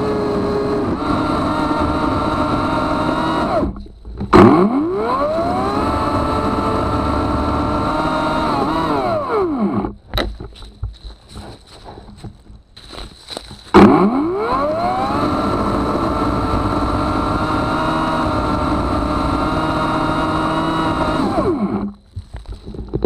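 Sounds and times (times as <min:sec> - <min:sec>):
chainsaw cutting wood: 0:00.0 - 0:10.4, 0:13.3 - 0:22.0.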